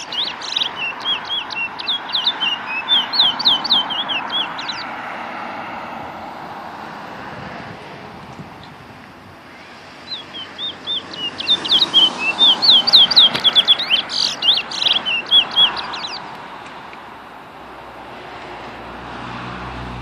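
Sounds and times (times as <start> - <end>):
songbird singing whistled notes: 0.0 - 4.9, 9.5 - 16.2.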